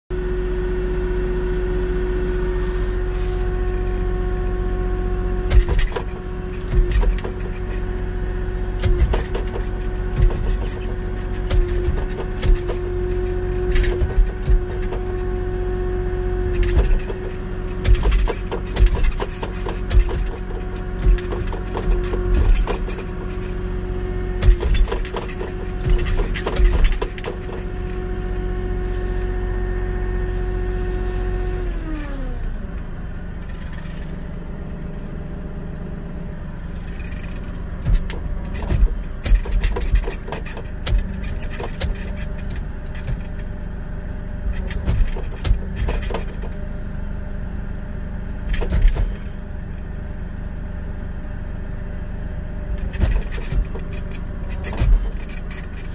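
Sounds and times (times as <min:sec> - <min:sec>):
loader engine whining: 0:00.1 - 0:55.9
plow clunks and knocks: 0:05.4 - 0:15.6, 0:16.2 - 0:35.5, 0:36.2 - 0:43.6, 0:44.4 - 0:46.8, 0:48.4 - 0:49.4, 0:52.7 - 0:55.9.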